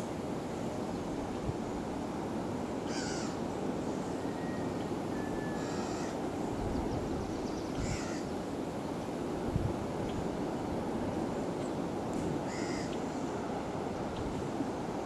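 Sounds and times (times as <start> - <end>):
low background noise: 0.0 - 15.0
harsh bird calls: 6.9 - 8.3.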